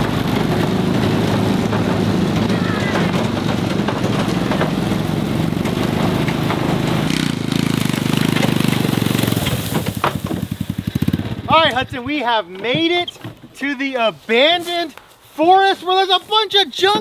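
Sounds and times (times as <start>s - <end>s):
small engine running: 0.0s - 11.9s.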